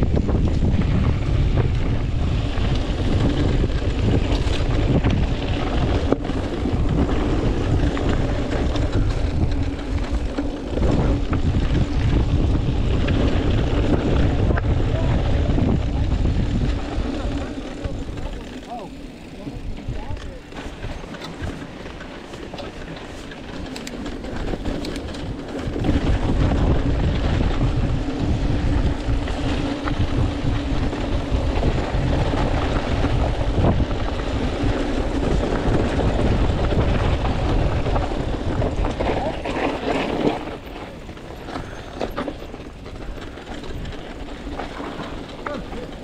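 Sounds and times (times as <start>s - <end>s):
bike tyres and frame rattling: 0.0s - 46.0s
wind rush on microphone: 0.0s - 46.0s.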